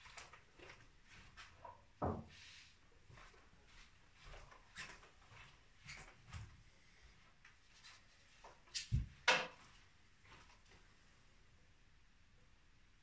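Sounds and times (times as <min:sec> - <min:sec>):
footsteps and knocks: 0:00.0 - 0:02.4, 0:03.0 - 0:06.6, 0:07.8 - 0:10.8.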